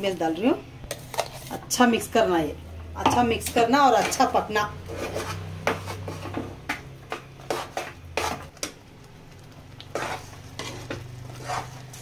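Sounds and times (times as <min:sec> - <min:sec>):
metal spatula scraping a pan: 0:00.9 - 0:01.8, 0:03.1 - 0:08.6, 0:09.8 - 0:12.0.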